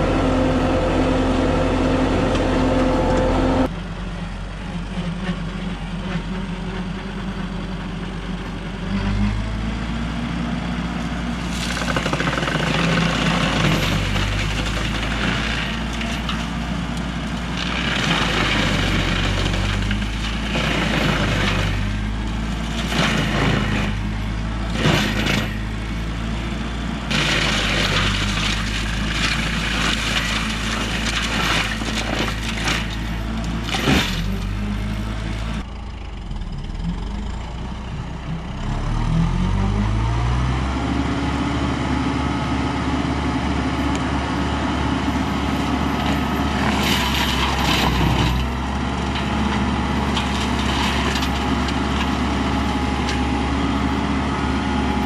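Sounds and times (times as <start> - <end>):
tractor diesel engine: 0.0 - 55.0
mulcher grinding brush: 11.4 - 26.0, 27.1 - 35.7, 45.0 - 53.7.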